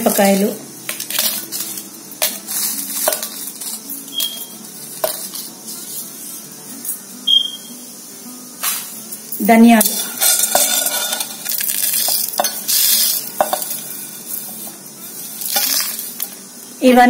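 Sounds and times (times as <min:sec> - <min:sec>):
dry spices clattering into steel jar: 0:00.0 - 0:05.5, 0:09.8 - 0:16.4.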